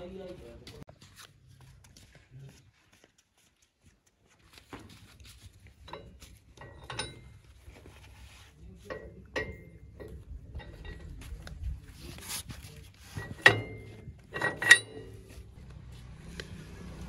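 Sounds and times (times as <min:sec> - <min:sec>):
ringing metal clink: 0:05.9 - 0:07.5, 0:08.9 - 0:11.2, 0:13.3 - 0:15.4.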